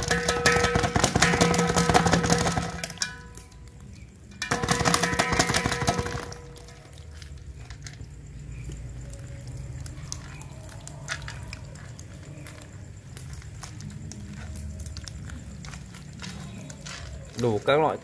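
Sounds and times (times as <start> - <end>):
wet squelching of fish: 6.4 - 18.0.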